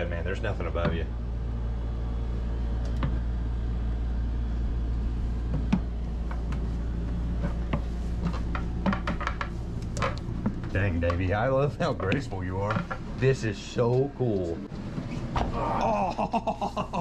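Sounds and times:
low mechanical hum: 0.0 - 17.0
footsteps on wooden stairs: 5.4 - 13.1.

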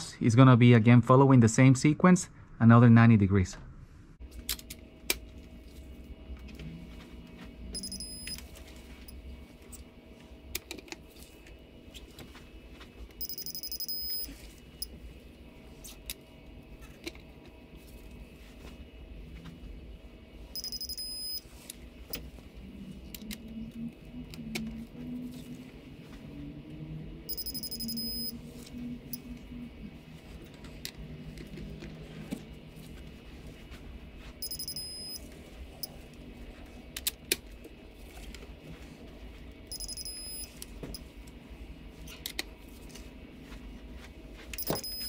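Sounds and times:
high electronic beep: 7.7 - 8.4, 13.2 - 14.3, 20.6 - 21.4, 27.3 - 28.4, 34.4 - 35.2, 39.7 - 40.5, 44.6 - 45.0.

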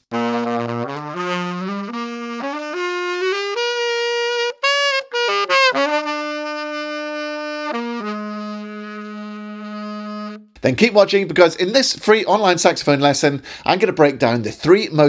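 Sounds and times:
saxophone played poorly: 0.0 - 10.6.

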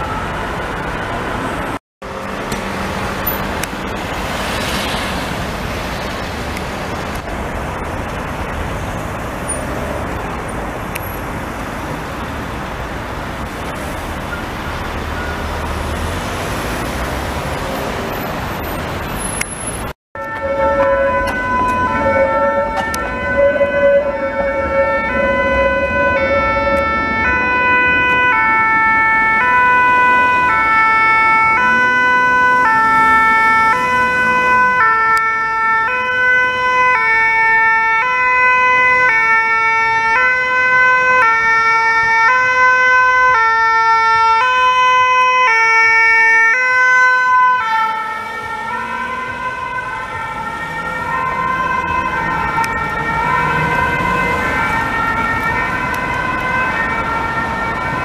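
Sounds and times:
two-tone emergency siren: 0.0 - 5.0, 20.2 - 58.0
road traffic: 0.0 - 58.0.

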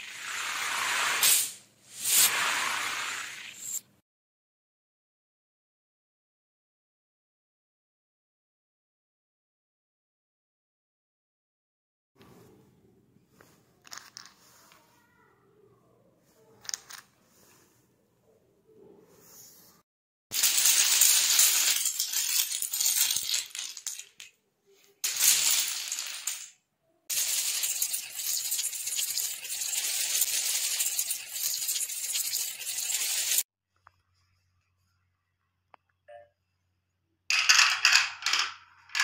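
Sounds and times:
dominoes toppling clatter: 20.3 - 24.3, 25.0 - 33.4.

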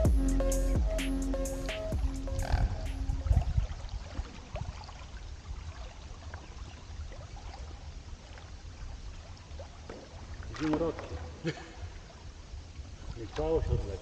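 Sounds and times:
water trickling and lapping: 2.0 - 14.0.

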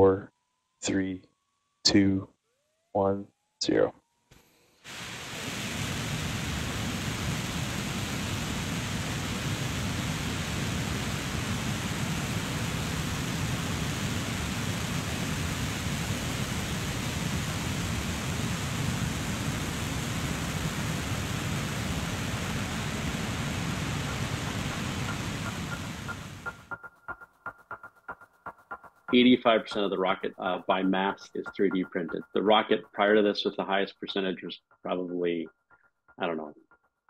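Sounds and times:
rocket engine roaring: 4.9 - 26.7, 29.1 - 34.4.

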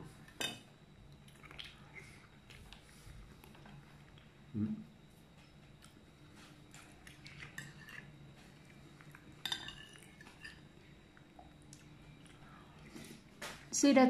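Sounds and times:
spoon clinking on ceramic bowl: 9.4 - 10.6.

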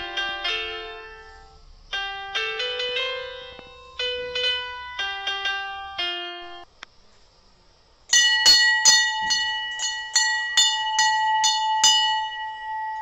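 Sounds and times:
brass temple bell ringing: 8.1 - 13.0.

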